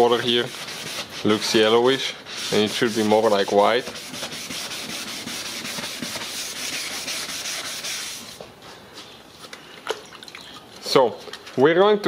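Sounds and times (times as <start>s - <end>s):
sandpaper rasping on plastic: 0.0s - 8.4s.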